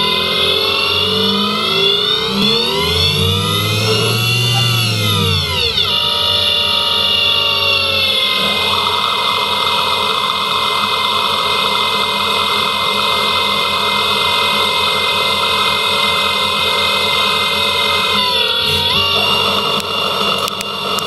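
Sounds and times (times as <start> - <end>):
tool cutting metal: 0.0 - 12.6, 17.0 - 21.0
lathe spindle whine: 0.0 - 21.0.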